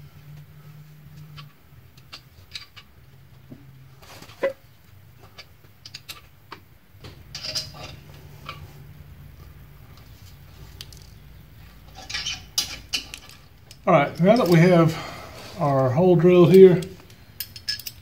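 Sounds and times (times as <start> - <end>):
low steady hum: 0.0 - 18.0
metal tap clicking and creaking: 5.3 - 7.7.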